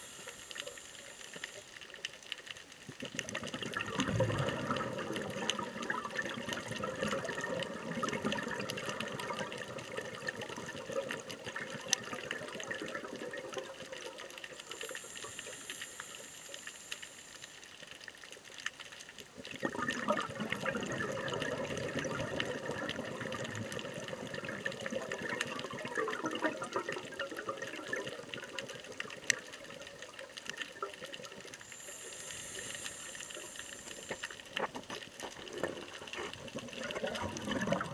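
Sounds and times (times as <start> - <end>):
regulator inhaling hiss: 0.0 - 2.0, 14.5 - 18.0, 31.6 - 34.6
underwater exhaled bubbles: 0.0 - 37.9.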